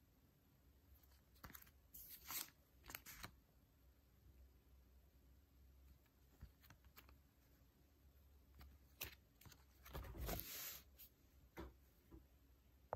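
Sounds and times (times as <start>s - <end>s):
rustle of banknote stack: 1.0s - 3.3s.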